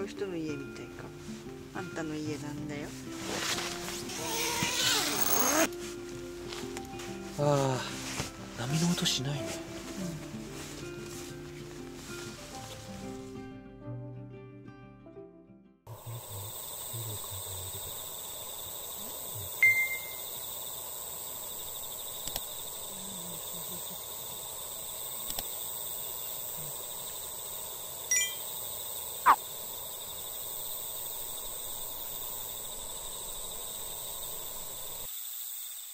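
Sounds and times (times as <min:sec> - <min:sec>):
insect chorus trilling: 0:03.3 - 0:05.7, 0:15.9 - 0:35.9
bright high notes: 0:28.1 - 0:28.4.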